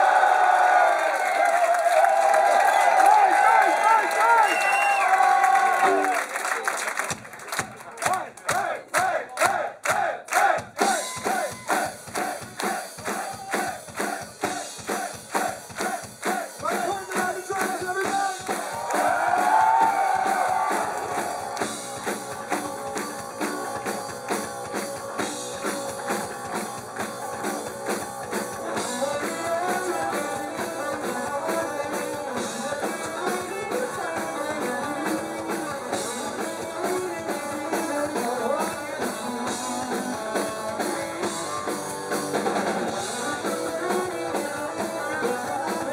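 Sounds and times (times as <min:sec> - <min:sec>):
hand claps: 0:01.2 - 0:28.5
drum beat: 0:07.1 - 0:45.9
voices singing: 0:08.1 - 0:45.9
electric guitar: 0:19.4 - 0:45.9.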